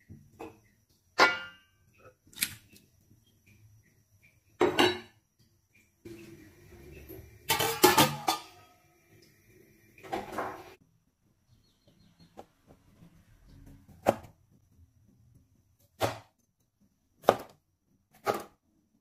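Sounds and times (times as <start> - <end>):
metal wok lid clattering: 7.5 - 8.7.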